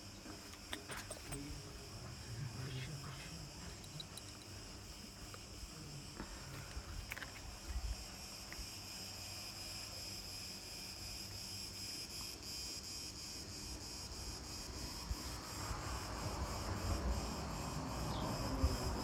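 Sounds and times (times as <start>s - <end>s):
insects chirring: 0.0s - 19.0s.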